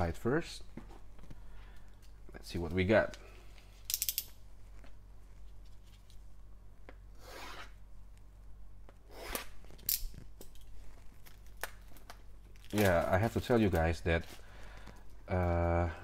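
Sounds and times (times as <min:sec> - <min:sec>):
shrink-wrap being scraped and slit: 0:09.1 - 0:10.2.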